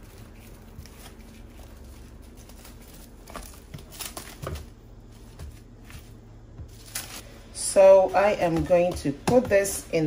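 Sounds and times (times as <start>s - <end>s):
plastic cling wrap crinkling: 0.0s - 4.7s.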